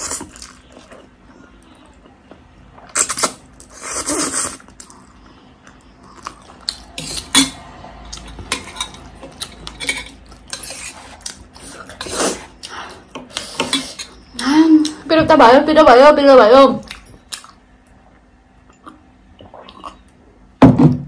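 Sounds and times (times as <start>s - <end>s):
noodles being slurped: 2.9s - 5.1s
chewing: 16.8s - 18.0s.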